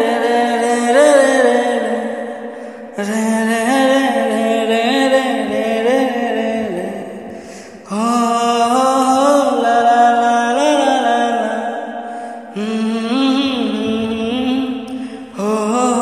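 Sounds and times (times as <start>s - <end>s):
person singing wordless melody: 0.0s - 16.0s.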